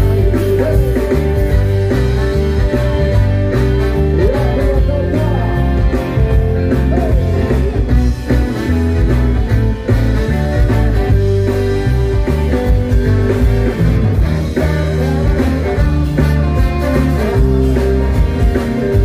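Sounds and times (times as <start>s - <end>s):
person singing: 0.0s - 1.5s, 4.0s - 7.8s, 14.2s - 19.0s
live ska band playing: 0.0s - 19.0s.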